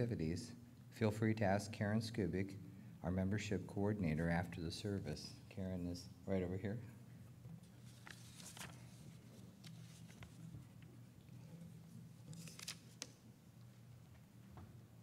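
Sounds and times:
low room hum: 0.0 - 15.0
paper rustling: 7.6 - 10.9, 11.5 - 13.2.

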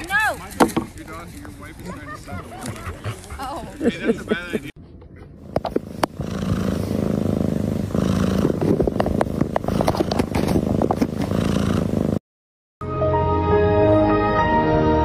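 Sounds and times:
cat purring: 5.5 - 12.2
cardboard box rustling and scratching: 8.5 - 11.6.

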